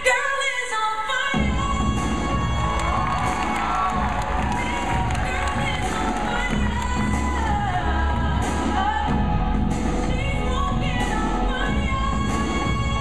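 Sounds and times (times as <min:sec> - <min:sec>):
song with singing: 0:00.0 - 0:13.0
drumline drumming: 0:01.4 - 0:10.0.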